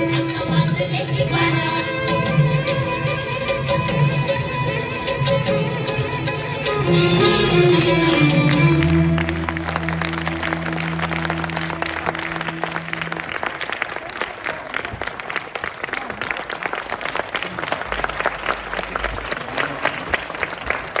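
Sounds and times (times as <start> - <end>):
audience applauding: 7.7 - 21.0.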